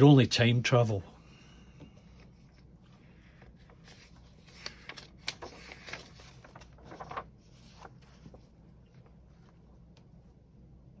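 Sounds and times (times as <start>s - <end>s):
low steady hum: 0.0s - 11.0s
magazine pages turning: 2.0s - 9.6s.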